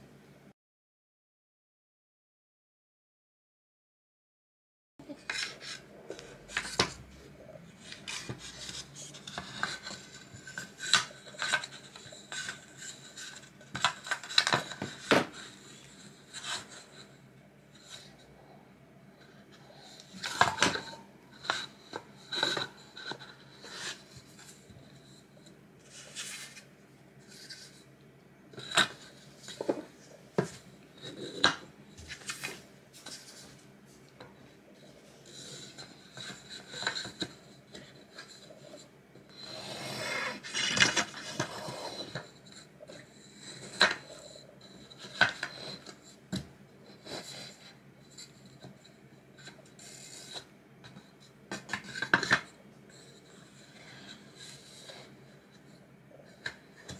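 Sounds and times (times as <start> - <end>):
rubbing and scraping: 25.8 - 27.8.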